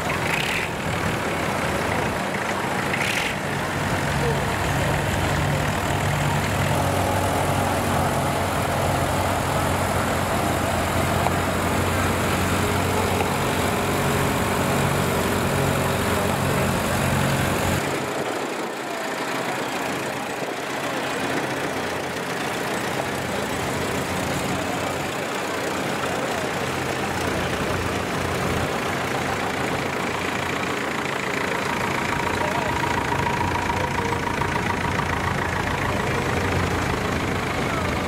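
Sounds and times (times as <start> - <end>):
engine idling with throb: 0.0 - 38.0.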